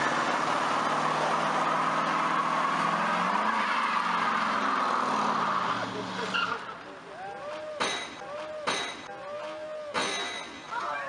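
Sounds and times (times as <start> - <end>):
tyre squeal: 5.4 - 8.7.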